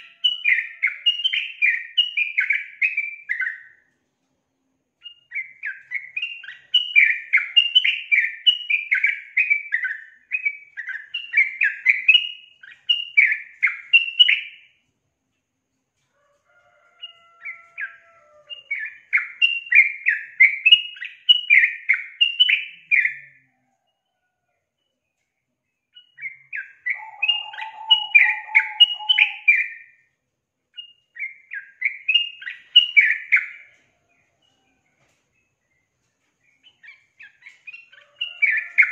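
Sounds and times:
bird bubbly chattering song: 26.3s - 29.8s.

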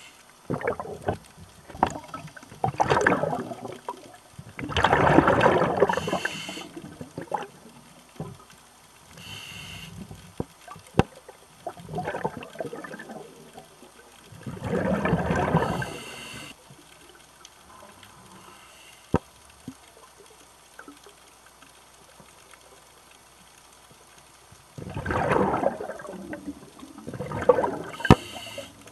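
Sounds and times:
bubbling exhalations underwater: 0.5s - 8.4s, 11.6s - 13.8s, 14.4s - 16.0s, 24.8s - 28.3s
hissing inhalations: 5.9s - 6.8s, 9.2s - 10.2s, 15.6s - 16.6s, 18.2s - 19.2s, 28.0s - 28.9s.

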